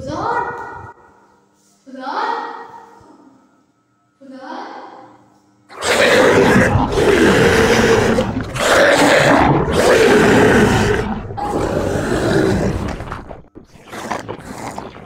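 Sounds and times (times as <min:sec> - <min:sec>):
rough zombie roars: 0:05.7 - 0:15.0.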